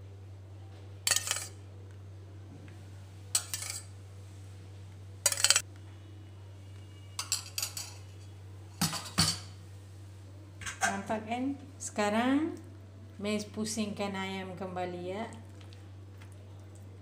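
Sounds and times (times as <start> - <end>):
metal spoon scraping a tray: 1.1 - 1.5, 3.4 - 3.9, 5.3 - 5.6.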